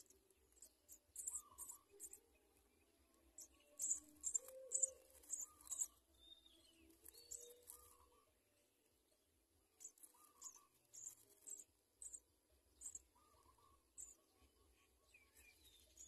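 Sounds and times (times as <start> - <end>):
nestling begging chirps: 0.0 - 2.4, 3.3 - 8.2, 9.8 - 14.3.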